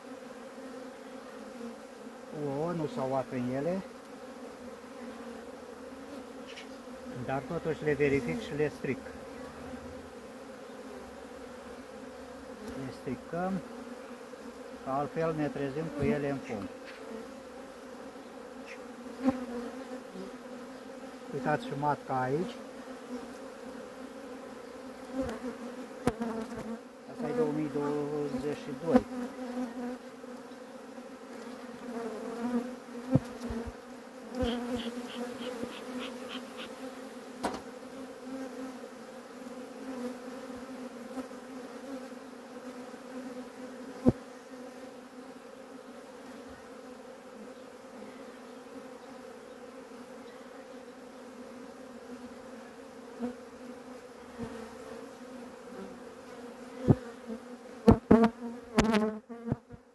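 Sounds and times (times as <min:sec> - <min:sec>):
bees buzzing: 0:00.0 - 0:59.9
hive tool knocking on frames: 0:32.4 - 0:33.8, 0:37.4 - 0:37.8, 0:57.8 - 0:59.8.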